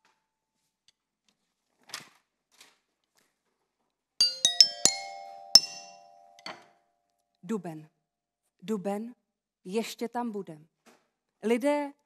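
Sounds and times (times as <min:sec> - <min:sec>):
metallophone notes: 0:04.2 - 0:06.7.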